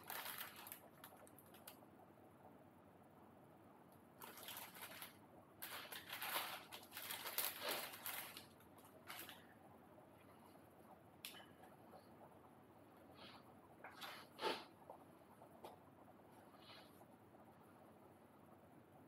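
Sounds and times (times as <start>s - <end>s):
rustling handling noise: 0.0s - 1.8s, 4.2s - 9.6s.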